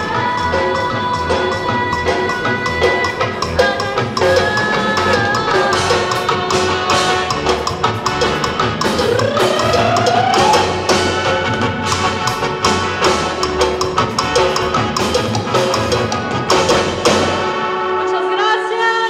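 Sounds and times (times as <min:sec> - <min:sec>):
woman singing into microphone: 0:00.0 - 0:07.3, 0:17.9 - 0:19.0
drum kit beat: 0:00.0 - 0:18.0
electronic keyboards: 0:00.0 - 0:19.0.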